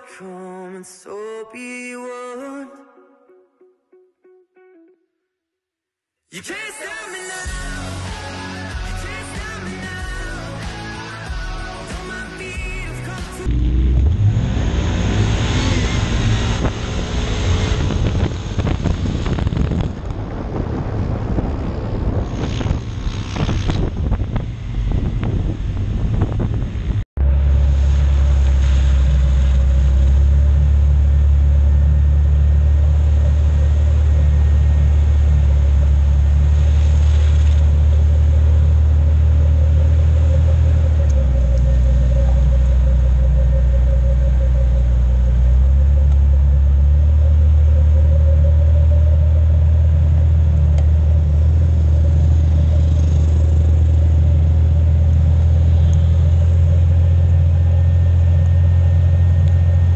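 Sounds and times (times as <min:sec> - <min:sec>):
car driving on sand: 0:13.1 - 0:59.9.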